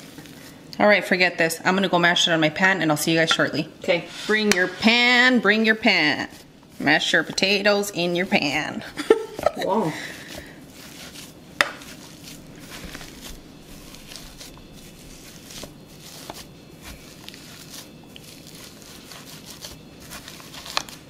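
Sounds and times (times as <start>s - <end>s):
potato masher mashing potatoes: 4.2s - 21.0s.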